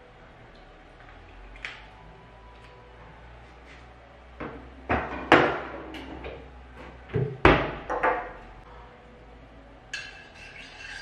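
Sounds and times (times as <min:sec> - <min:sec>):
kitchen cabinet knocks and clatter: 0:04.4 - 0:06.4, 0:07.1 - 0:08.3.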